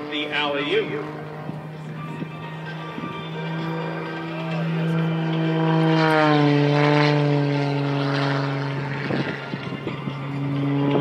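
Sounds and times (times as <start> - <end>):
propeller plane droning overhead: 0.0 - 11.0.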